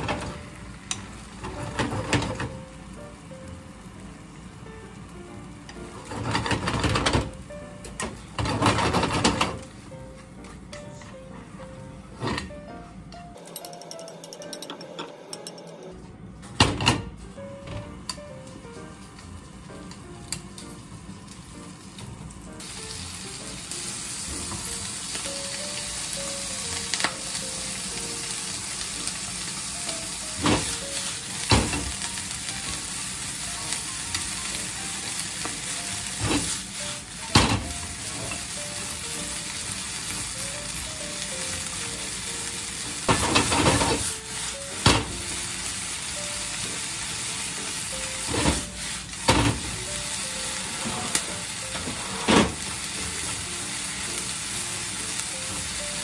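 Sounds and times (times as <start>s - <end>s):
pork sizzling in a frying pan: 0.0s - 12.6s, 16.6s - 56.0s
utensils scraping a pan: 50.8s - 52.6s.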